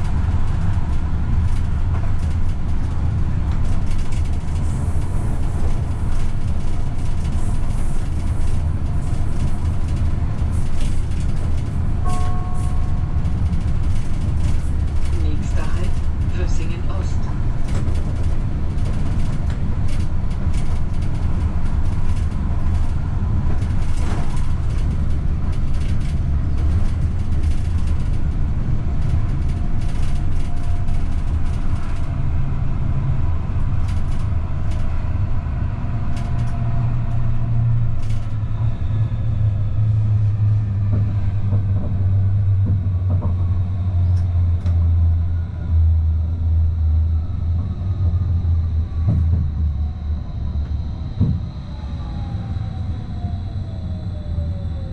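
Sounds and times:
train rumbling on track: 0.0 - 54.9
clicks over the rails: 29.0 - 32.2, 33.7 - 35.0, 36.1 - 37.2.

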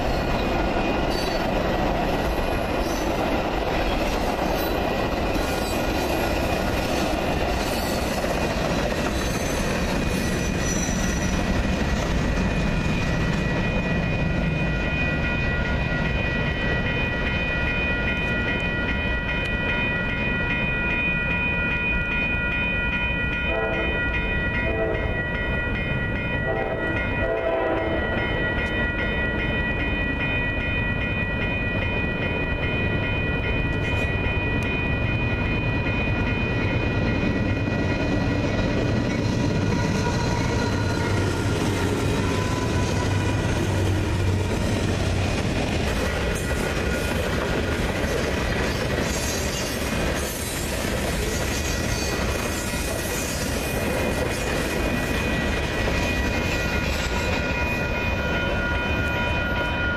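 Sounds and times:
crossing warning bells ringing: 0.0 - 59.9
train rumbling on rails: 0.0 - 59.9
train horn blasts: 23.5 - 25.2, 26.5 - 28.1.

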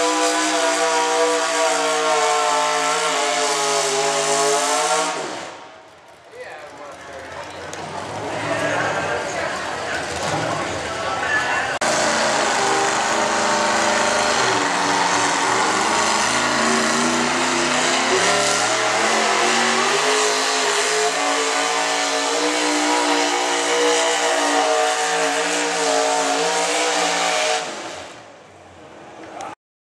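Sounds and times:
engine revving under load: 11.8 - 28.3.

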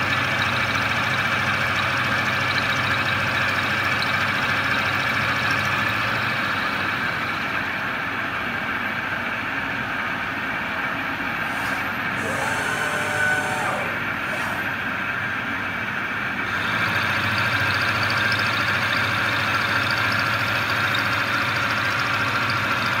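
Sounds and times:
milling machine cutting metal: 11.2 - 15.3, 16.4 - 23.0.

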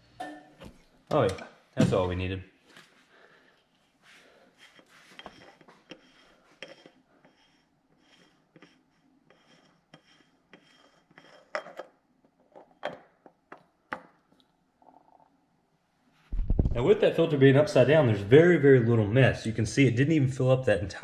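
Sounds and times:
metal canister scraping on threads: 4.6 - 11.9.

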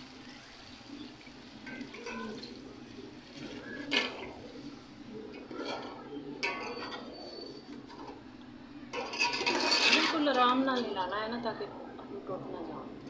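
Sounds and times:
water pouring into a metal pot: 0.0 - 4.6
metal spoon scraping and clattering: 1.6 - 2.4, 5.7 - 7.1, 8.9 - 10.9.

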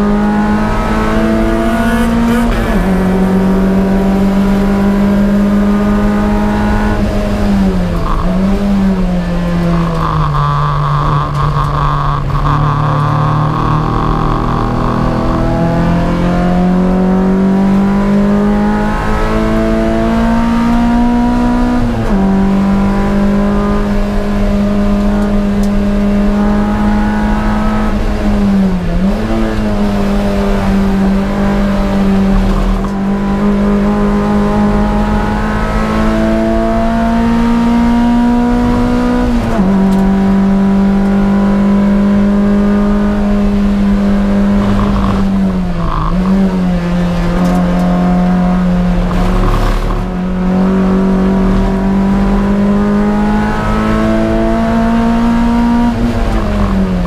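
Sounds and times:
race car engine revving: 0.0 - 57.0.

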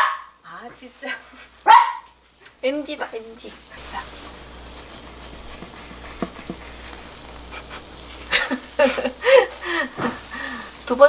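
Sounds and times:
egg sizzling in a pan: 0.8 - 11.0
spatula scraping a pan: 3.5 - 11.0.

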